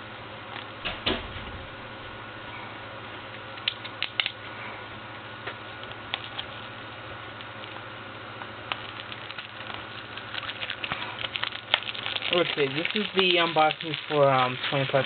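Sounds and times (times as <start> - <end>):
background hum: 0.0 - 15.0
small objects clicking and tapping: 10.4 - 15.0.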